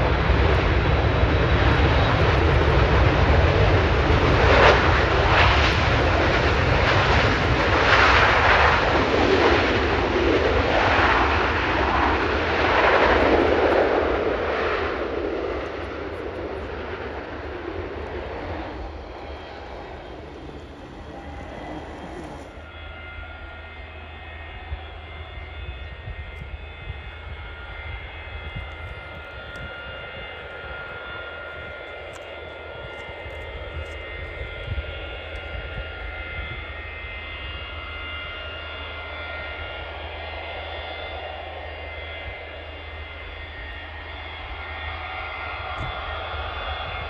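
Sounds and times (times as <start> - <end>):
jet turbine whine: 0.0 - 47.0
low engine rumble: 16.1 - 35.8.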